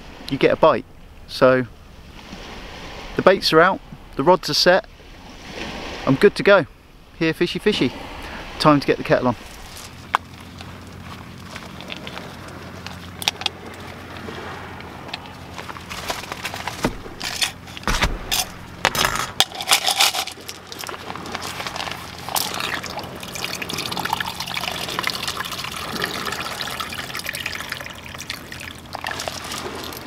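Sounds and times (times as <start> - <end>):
plastic bag rustling and clicking: 15.2 - 22.6
water trickling into a mug: 20.5 - 30.0.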